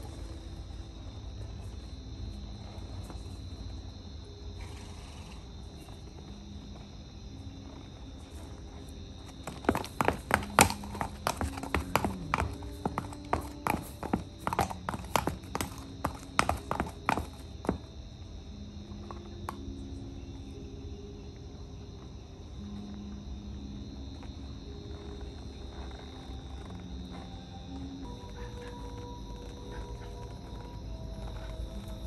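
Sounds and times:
horse hooves clopping on concrete: 5.4s - 19.9s, 24.1s - 32.0s.

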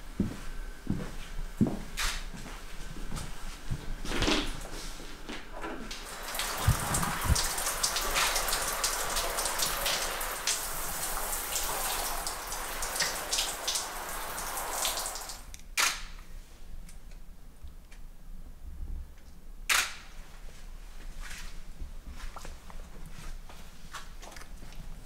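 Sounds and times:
shower shutoff click: 5.6s - 15.5s
water dripping and splashing: 5.9s - 15.5s
shower spray hissing: 6.0s - 15.5s.

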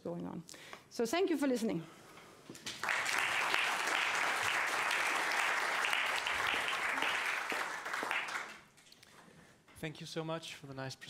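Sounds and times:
audience applauding: 2.6s - 8.7s.

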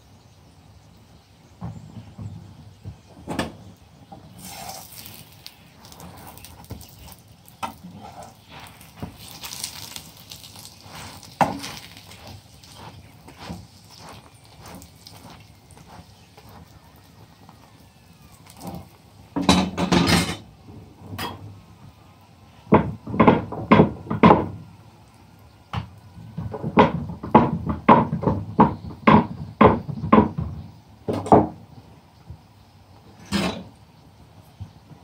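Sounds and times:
spatula knocking and scraping a pan: 4.4s - 17.6s, 22.7s - 24.6s.

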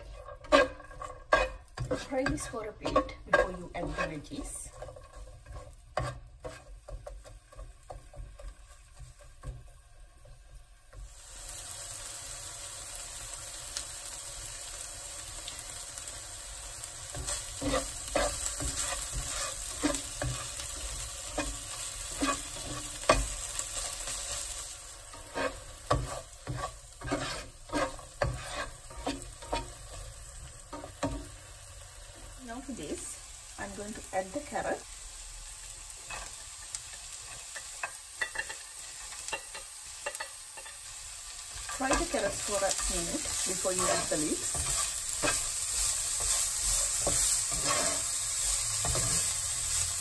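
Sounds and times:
spatula knocking and scraping pan: 0.0s - 11.1s, 16.9s - 31.4s, 36.0s - 49.8s
food sizzling in hot oil: 0.0s - 50.0s.

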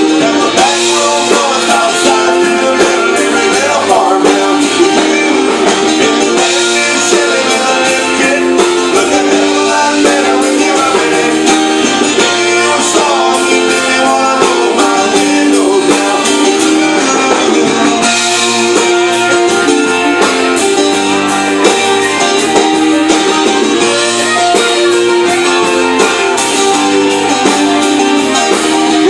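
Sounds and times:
live band with strummed guitars: 0.0s - 29.0s.

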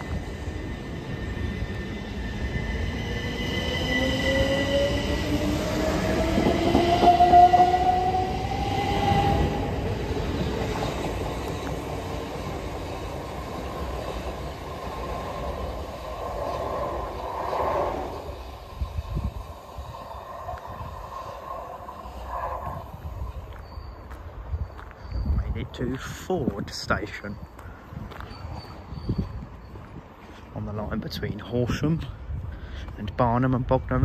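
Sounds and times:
electric train whine: 0.0s - 26.2s
wheels rumbling on rails: 0.0s - 34.0s.

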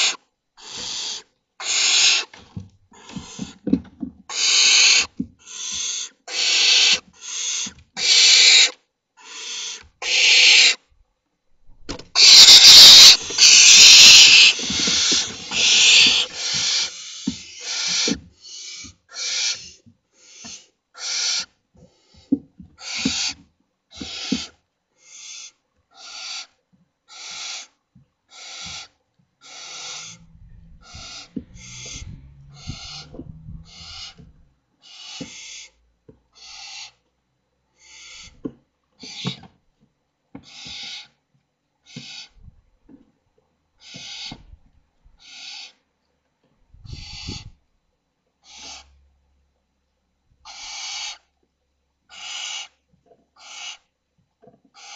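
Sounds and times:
owl chicks hissing begging calls: 0.0s - 2.3s, 3.0s - 3.6s, 4.3s - 10.8s, 12.1s - 30.2s, 30.8s - 35.8s, 36.4s - 37.0s, 37.8s - 38.4s, 39.0s - 39.4s, 40.4s - 41.2s, 41.8s - 42.4s, 43.8s - 44.4s, 45.2s - 45.8s, 46.9s - 47.5s, 48.4s - 49.0s, 50.4s - 51.3s, 52.1s - 52.8s, 53.4s - 53.9s.

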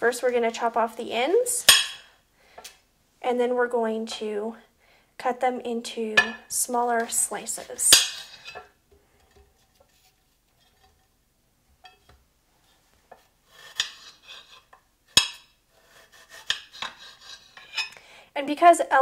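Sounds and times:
knife blade striking plate: 1.6s - 2.0s, 7.9s - 8.7s, 13.7s - 14.6s, 15.2s - 15.5s, 16.4s - 17.8s
knife sawing strokes: 13.2s - 14.7s, 15.7s - 17.8s.

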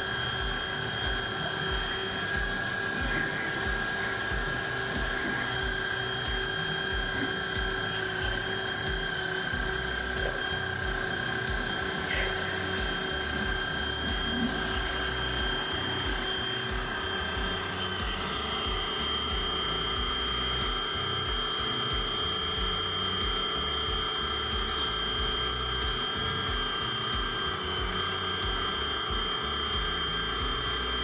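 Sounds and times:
pressure washer motor humming: 0.0s - 31.0s.

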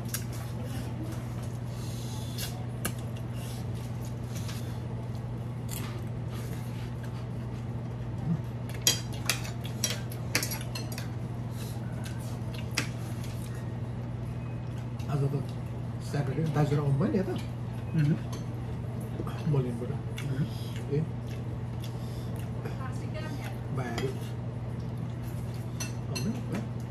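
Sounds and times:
steady low hum: 0.0s - 26.9s.

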